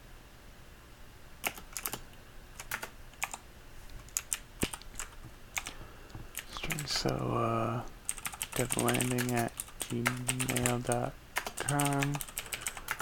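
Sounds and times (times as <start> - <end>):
computer keyboard typing: 1.4 - 2.0, 2.6 - 3.4, 4.0 - 7.2, 8.1 - 13.0.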